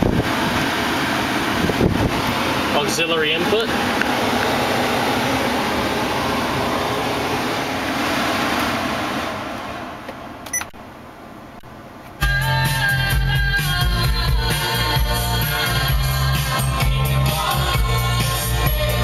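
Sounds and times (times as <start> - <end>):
blower fan rushing: 0.0 - 12.0.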